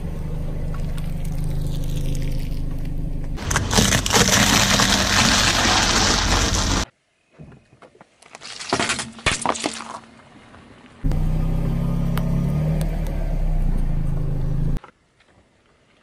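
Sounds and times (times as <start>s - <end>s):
car engine humming: 0.0s - 6.8s, 11.0s - 14.8s
stress balls squelching and crackling: 0.9s - 6.9s.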